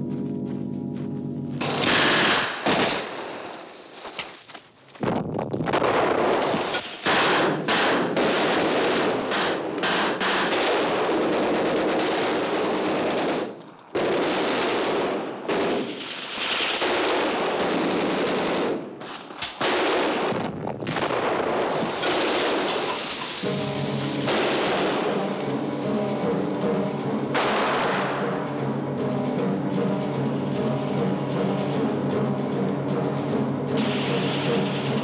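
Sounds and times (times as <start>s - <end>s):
automatic gunfire: 1.6s - 3.2s, 5.8s - 18.9s.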